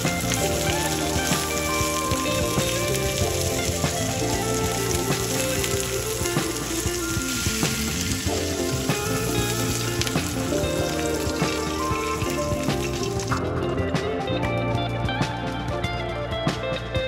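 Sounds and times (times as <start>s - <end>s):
vegetables sizzling in oil: 0.0s - 13.4s
background music: 0.0s - 17.0s.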